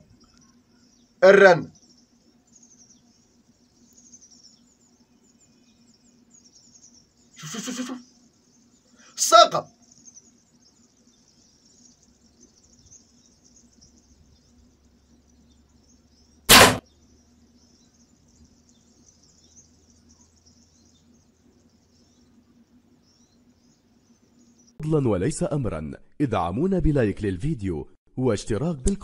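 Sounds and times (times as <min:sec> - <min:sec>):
faint high-pitched hiss: 0:00.0 - 0:25.2
arrow thwack: 0:16.5 - 0:16.8.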